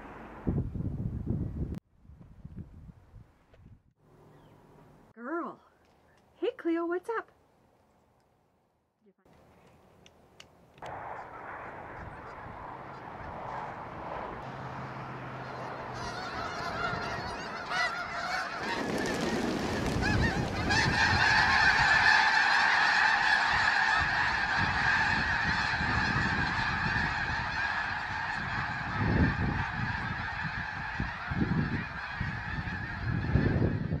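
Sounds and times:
flock of geese honking: 11.2s - 13.6s, 14.4s - 34.0s.

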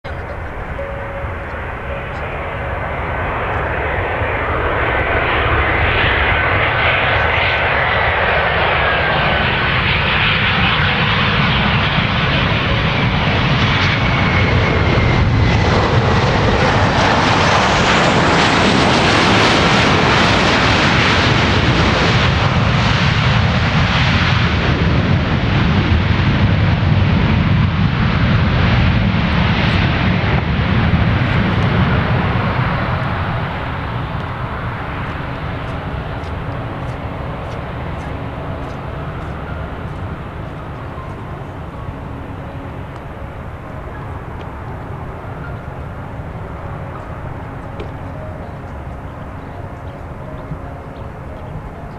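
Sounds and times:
high fan whine: 0.1s - 10.1s, 25.1s - 51.9s
jet engines in reverse thrust: 0.1s - 51.9s.

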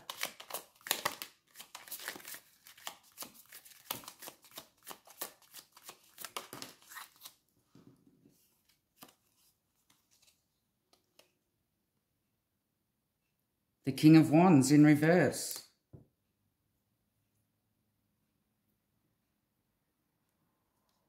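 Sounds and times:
cards being shuffled: 0.0s - 7.5s, 8.4s - 11.3s.

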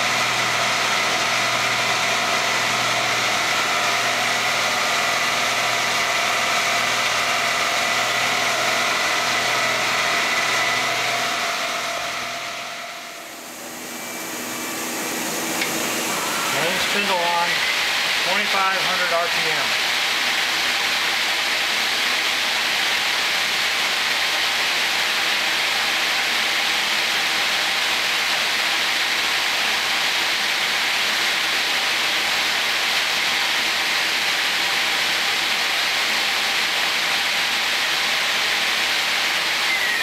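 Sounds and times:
lathe spindle whirring: 0.0s - 40.0s
faint hum tones: 9.4s - 19.5s.

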